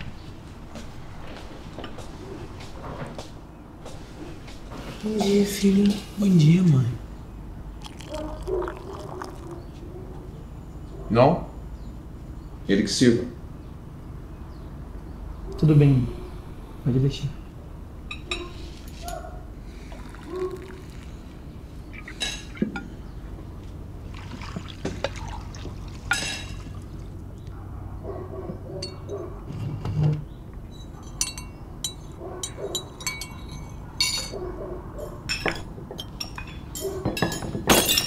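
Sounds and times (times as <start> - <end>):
tea pouring into cup: 7.8 - 9.7, 19.8 - 21.2, 24.1 - 27.1
dishes clinking: 18.1 - 19.2, 22.1 - 23.0, 26.0 - 26.7, 28.8 - 30.0, 30.7 - 38.0.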